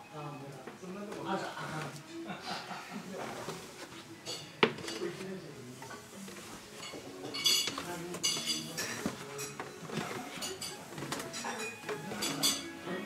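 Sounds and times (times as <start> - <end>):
dishes and cutlery clinking: 1.2 - 13.0.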